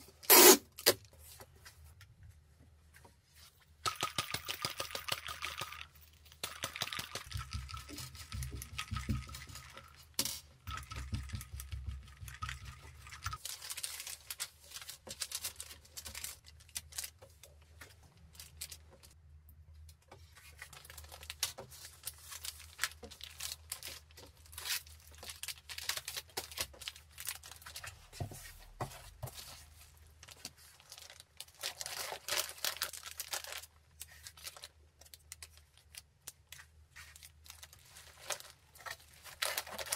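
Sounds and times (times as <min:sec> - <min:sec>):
paper and plastic rustling: 0:13.2 - 0:19.2, 0:20.1 - 0:39.9.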